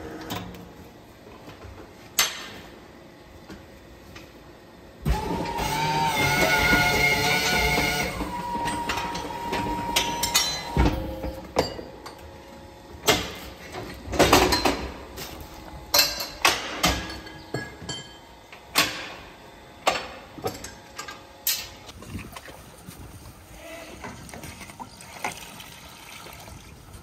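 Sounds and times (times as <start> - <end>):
metal clanking and knocks: 7.6 - 12.2, 13.0 - 15.0.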